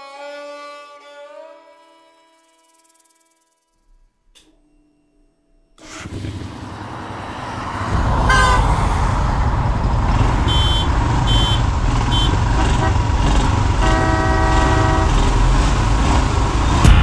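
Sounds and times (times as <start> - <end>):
motorcycle engines idling: 5.8 - 8.5, 9.5 - 16.7
city traffic: 5.8 - 17.0
high-pitched horn toots: 7.9 - 8.9, 10.4 - 16.1.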